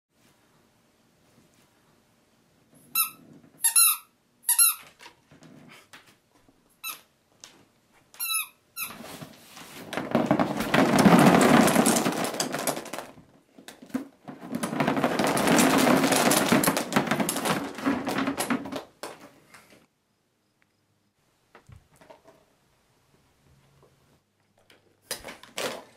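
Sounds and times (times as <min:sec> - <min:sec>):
rubber ducks pouring out: 0:09.8 - 0:19.2.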